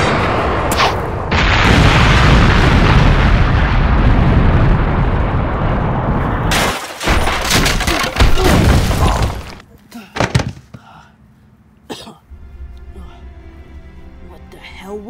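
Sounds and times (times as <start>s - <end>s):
loud sustained explosion blast: 0.0s - 6.6s.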